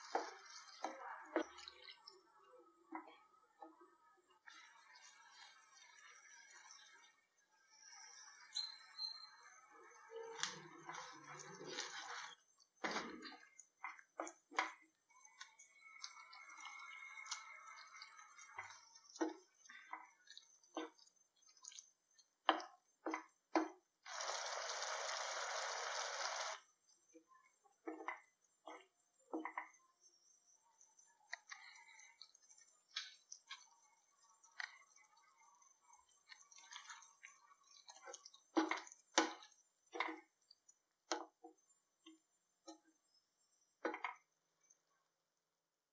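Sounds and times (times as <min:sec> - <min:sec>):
spatula stirring thick gravy: 0:00.0 - 0:02.3, 0:10.7 - 0:23.3, 0:30.8 - 0:41.8
sizzling hiss: 0:24.1 - 0:26.6.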